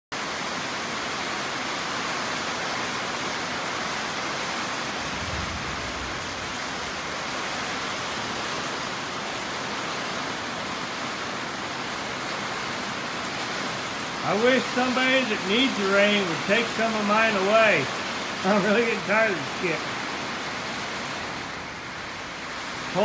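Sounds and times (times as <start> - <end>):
heavy rain pouring: 0.2 - 23.0
low rumble: 4.9 - 8.2.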